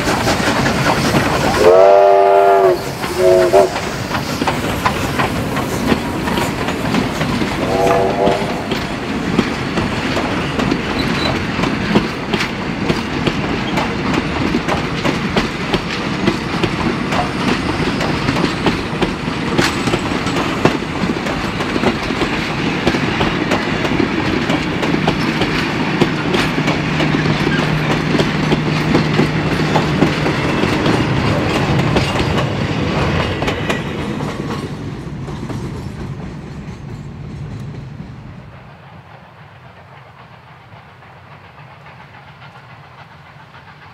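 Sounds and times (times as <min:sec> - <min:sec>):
train rumble: 0:00.0 - 0:43.9
wheels clattering over rail joints: 0:08.7 - 0:37.9.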